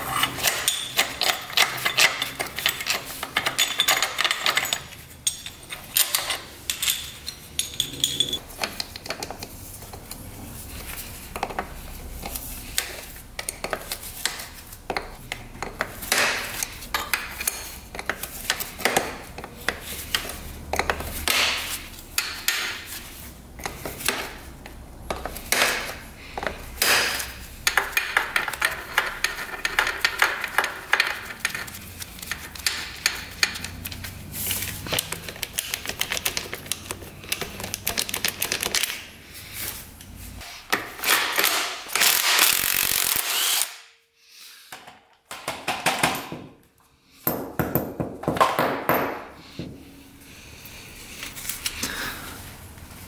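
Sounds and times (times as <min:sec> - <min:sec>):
metal tool clinks and knocks: 0:00.1 - 0:08.4
ratchet wrench clicking: 0:42.0 - 0:43.6.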